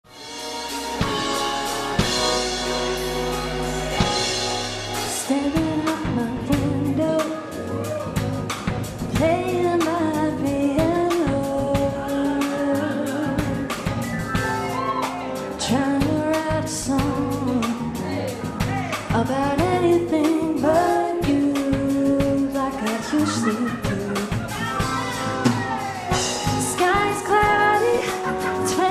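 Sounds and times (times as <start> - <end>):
live band playing pop song: 0.1 - 28.9
steady drum beat: 0.1 - 28.9
woman singing into microphone: 3.6 - 7.8, 9.1 - 13.9, 15.6 - 18.2, 19.1 - 28.9.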